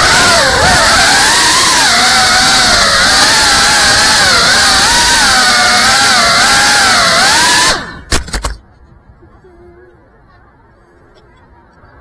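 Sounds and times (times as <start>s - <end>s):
drone motors whining: 0.0s - 8.5s.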